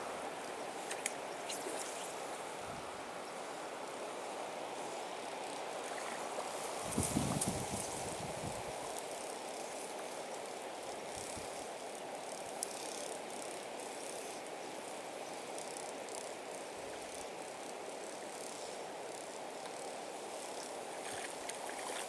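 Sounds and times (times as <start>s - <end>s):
river flowing: 0.0s - 6.8s.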